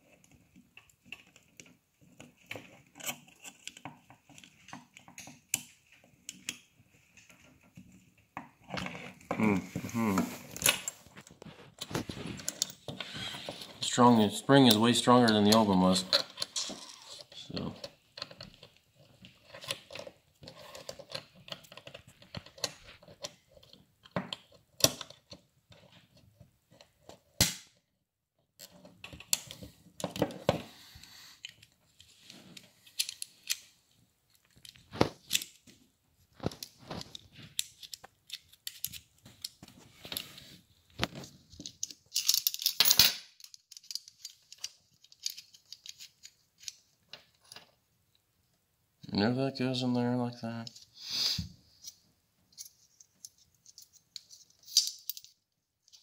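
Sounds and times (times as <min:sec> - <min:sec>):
small steel parts clicking: 0:41.6 - 0:46.8, 0:52.5 - 0:56.0.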